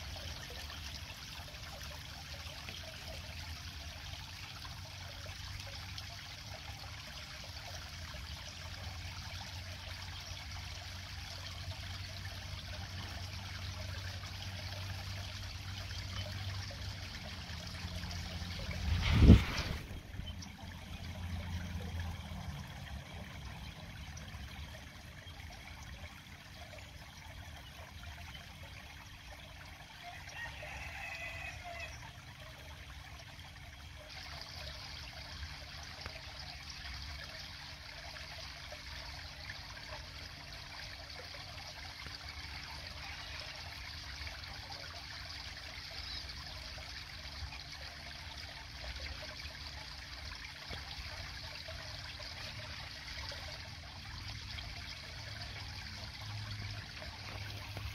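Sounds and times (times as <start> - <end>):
water trickling into a pond: 0.0 - 57.9.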